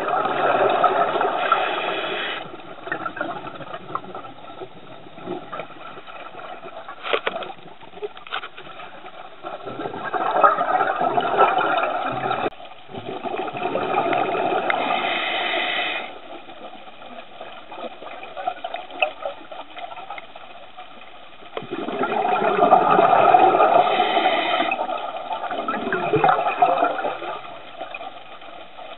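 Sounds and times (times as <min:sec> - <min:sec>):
diver bubbling exhalation: 0:21.6 - 0:24.8.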